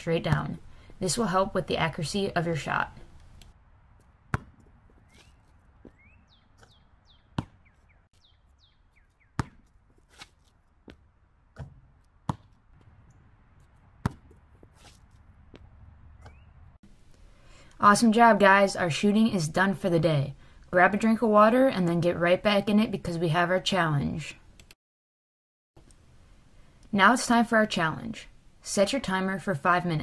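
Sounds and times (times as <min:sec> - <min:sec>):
basketball bouncing on concrete: 0:00.2 - 0:00.6, 0:04.2 - 0:05.2, 0:06.6 - 0:07.8, 0:09.3 - 0:10.0, 0:10.8 - 0:16.6.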